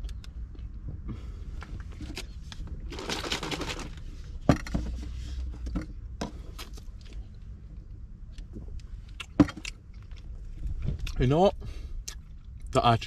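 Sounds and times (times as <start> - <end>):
shaker bottle rattling: 2.9 - 4.0.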